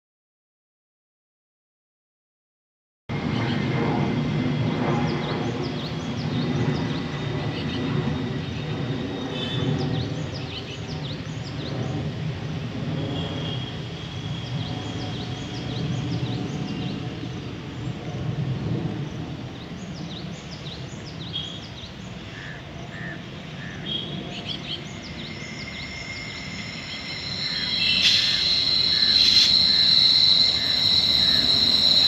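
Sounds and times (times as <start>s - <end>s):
steady low rumble: 3.1s - 13.2s
birds chirping: 19.6s - 32.0s.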